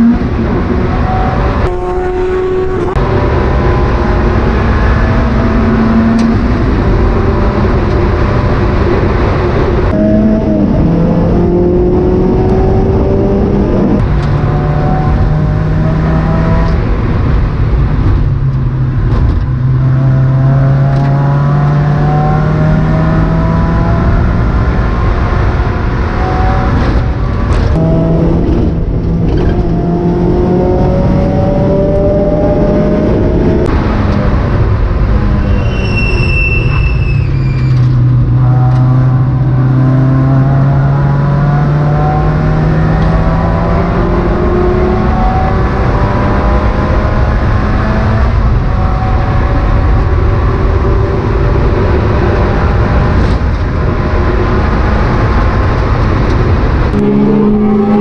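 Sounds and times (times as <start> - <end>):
race car engine revving: 0.0 - 35.5, 37.8 - 58.0
brief high squeal: 35.3 - 38.0.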